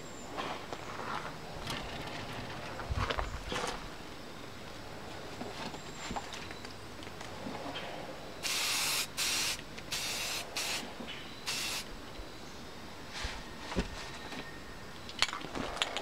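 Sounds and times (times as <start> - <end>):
spray can spraying: 8.4 - 10.8, 11.5 - 11.9.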